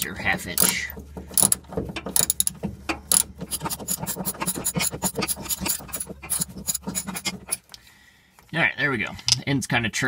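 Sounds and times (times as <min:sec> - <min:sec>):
socket wrench ratcheting: 0:00.0 - 0:07.8.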